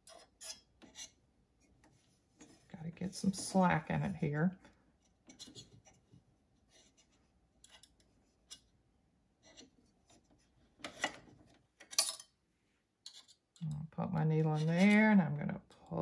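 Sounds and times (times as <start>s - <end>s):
screwdriver scraping metal: 0.0s - 1.2s, 6.8s - 8.7s, 13.0s - 13.4s.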